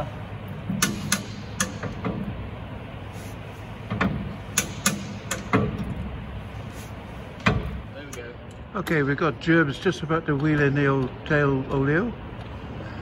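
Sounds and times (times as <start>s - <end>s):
steady low hum: 0.0s - 13.0s
metallic clicks and knocks: 3.9s - 6.0s.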